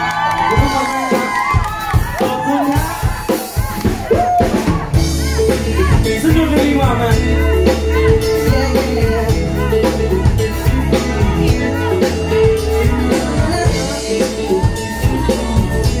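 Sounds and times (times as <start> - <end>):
live pop band through speakers: 0.0 - 16.0
steady drum beat: 0.0 - 16.0
man singing into microphone: 5.4 - 16.0.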